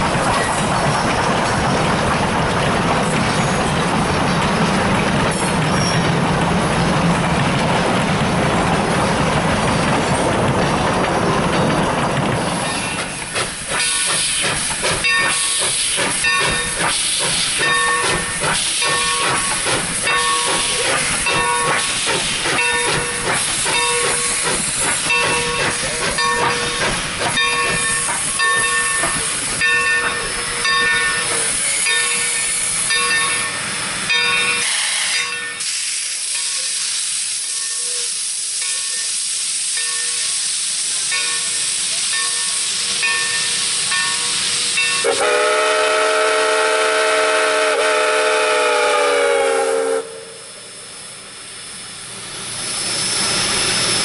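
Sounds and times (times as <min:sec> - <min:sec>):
steam locomotive hissing: 0:00.0 - 0:54.0
locomotive bell ringing: 0:15.0 - 0:15.6, 0:16.2 - 0:16.8, 0:17.6 - 0:21.9, 0:22.6 - 0:24.4, 0:25.0 - 0:35.7, 0:39.8 - 0:40.3, 0:41.1 - 0:45.2.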